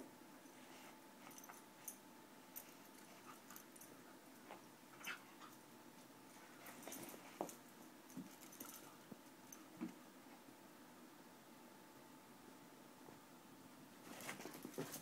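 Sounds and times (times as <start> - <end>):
puppies scuffling on carpet: 6.3 - 9.2, 14.0 - 15.0.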